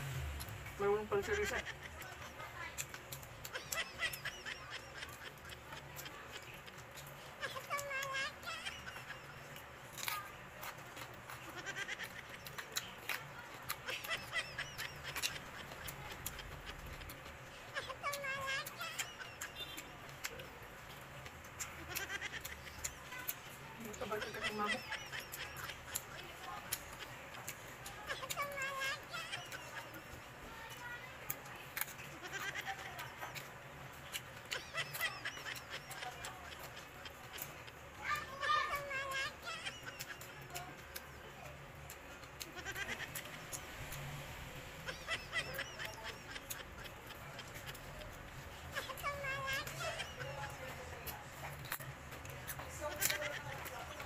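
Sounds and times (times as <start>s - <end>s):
crunching and chewing cucumber: 0.0s - 54.0s
animal calling: 0.8s - 44.2s, 44.8s - 54.0s
crunching cucumber bites: 1.7s - 20.5s.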